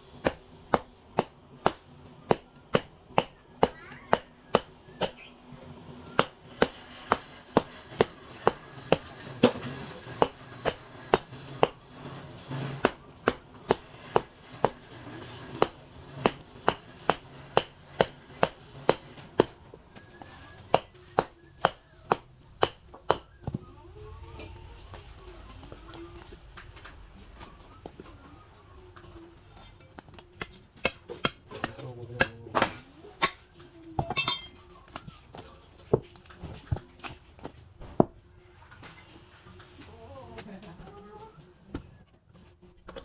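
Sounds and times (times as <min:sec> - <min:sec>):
hammer striking log: 0:00.2 - 0:05.2, 0:06.2 - 0:09.6, 0:10.2 - 0:11.8, 0:12.8 - 0:14.8, 0:15.6 - 0:19.6.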